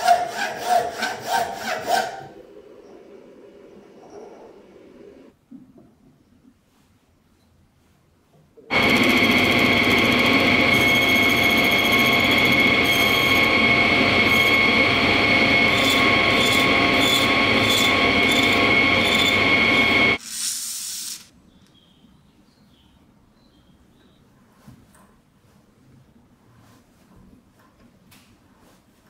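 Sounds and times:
tool cutting metal: 0.0 - 2.3, 8.7 - 21.3
metal lathe running: 8.7 - 20.2.

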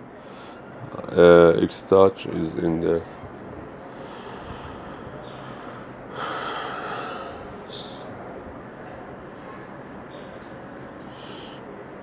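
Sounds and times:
person exhaling: 11.1 - 11.6.

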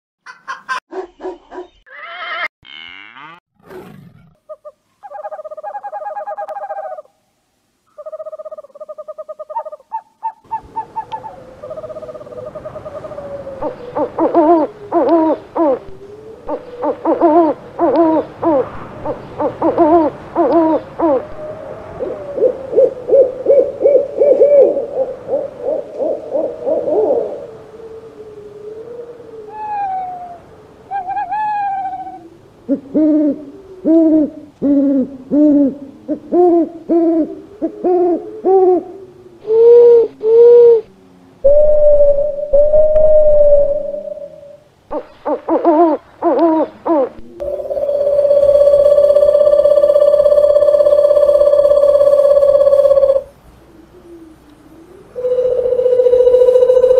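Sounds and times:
owl wavering slurred calls: 4.5 - 7.1, 7.9 - 56.9
owls hooting: 4.5 - 7.1, 8.0 - 56.9
owl rapid trill: 16.5 - 21.3, 41.4 - 53.3, 55.0 - 56.9.

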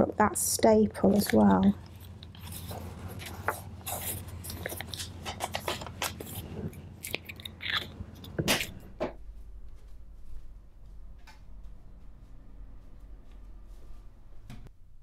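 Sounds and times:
paper rustling and crinkling: 1.1 - 8.8.

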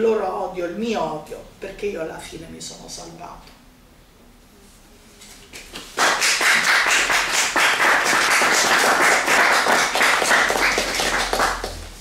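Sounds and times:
audience applauding: 6.0 - 11.9.

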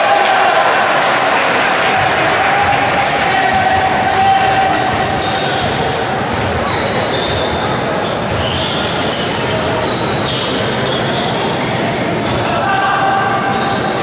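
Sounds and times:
echoing hall noise: 0.0 - 14.0
basketball bouncing: 2.0 - 9.6
sneaker squeaks: 4.8 - 12.6, 13.3 - 14.0.

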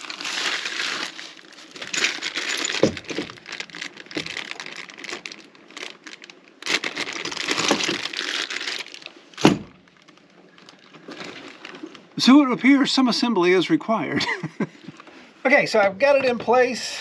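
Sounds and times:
plastic packaging crinkling: 0.0 - 12.2
metal parts clinking: 1.6 - 4.5.

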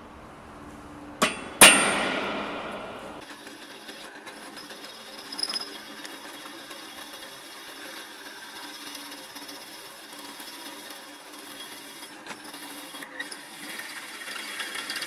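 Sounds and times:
ringing metallic clanks: 1.2 - 3.2.

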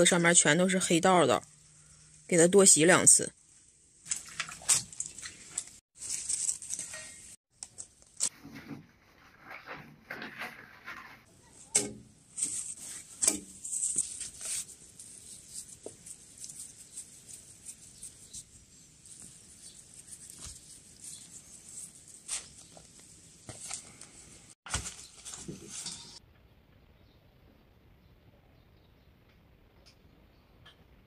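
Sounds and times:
leaves rustling: 3.4 - 26.2
hands squishing wet dough: 4.0 - 7.2, 12.5 - 24.0.

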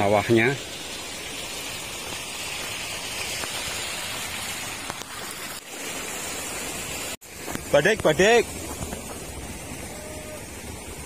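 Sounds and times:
water hissing: 0.0 - 11.0.

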